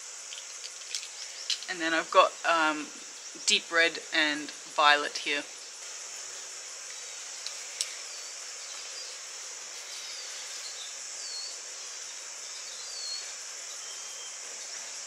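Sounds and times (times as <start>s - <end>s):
high-pitched insect chorus: 0.0s - 15.0s
bird chirps: 12.5s - 14.4s.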